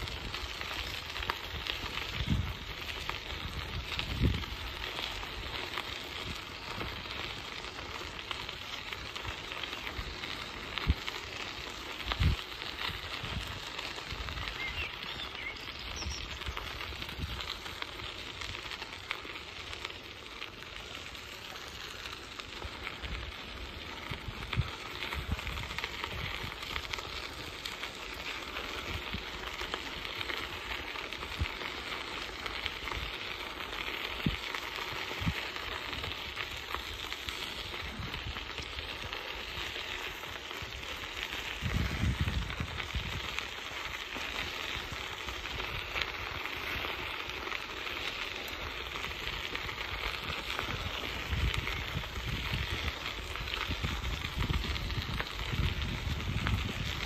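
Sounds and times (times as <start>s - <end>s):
wind buffeting microphone: 0.0s - 7.7s, 12.0s - 18.6s, 22.5s - 29.6s, 34.1s - 39.6s, 40.4s - 46.9s, 48.8s - 57.0s
bicycle tyres rolling on gravel: 0.0s - 57.0s.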